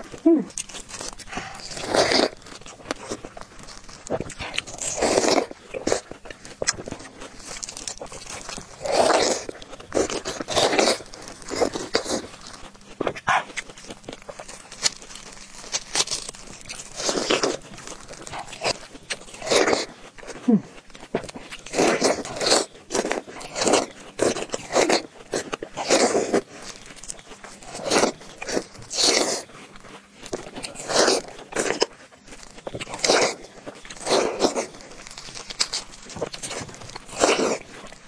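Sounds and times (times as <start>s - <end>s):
chewing: 0.0s - 38.0s
crunchy watermelon bites: 0.0s - 38.0s.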